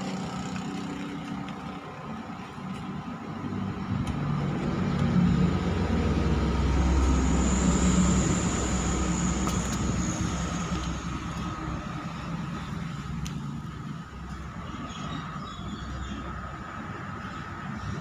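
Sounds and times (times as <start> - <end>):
motor vehicle passing by: 3.4 - 13.3.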